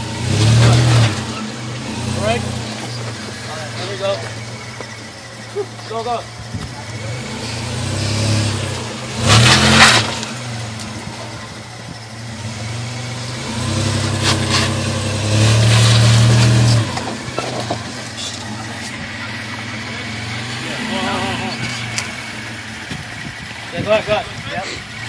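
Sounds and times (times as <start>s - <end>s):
engine revving: 0.0s - 25.0s
rough scraping crunch on rocks: 9.3s - 11.0s, 14.1s - 14.8s.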